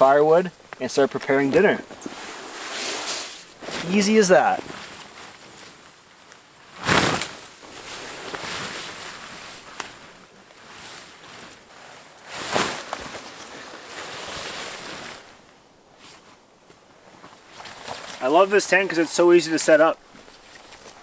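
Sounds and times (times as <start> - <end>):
tent fabric rustling: 0.0 - 21.0
loud fabric sweeps: 1.6 - 5.9, 6.6 - 15.4.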